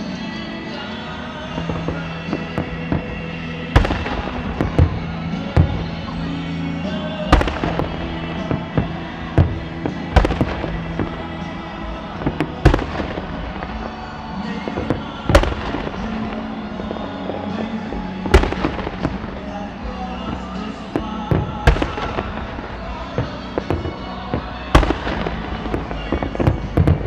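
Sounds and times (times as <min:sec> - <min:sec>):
fireworks bursting with bangs: 0:00.0 - 0:27.0
music playing: 0:00.0 - 0:27.0
small firework pops: 0:12.2 - 0:27.0.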